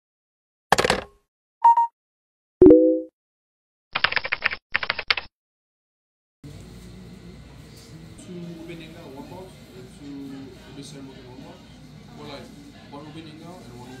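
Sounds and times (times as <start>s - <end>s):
short beep: 1.6s - 1.9s, 2.6s - 3.1s.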